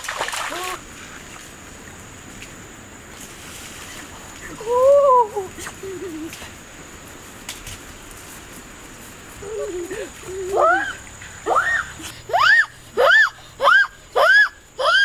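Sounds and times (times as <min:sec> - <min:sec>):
loud rising and falling cries: 0:10.6 - 0:15.0.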